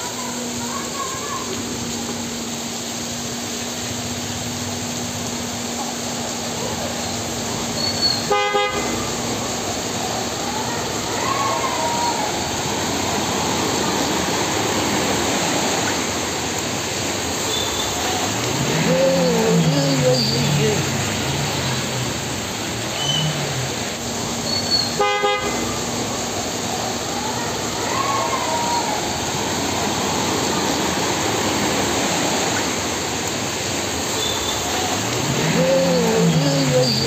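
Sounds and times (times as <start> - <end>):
heavy rain hissing: 0.0 - 37.0
vehicle horn honking: 8.2 - 9.2, 24.9 - 25.9.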